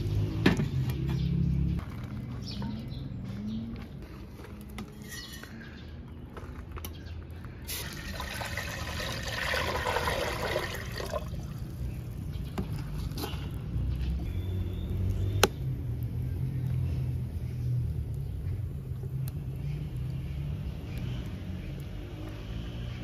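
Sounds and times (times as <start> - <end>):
water pouring into metal pot: 7.7 - 11.8.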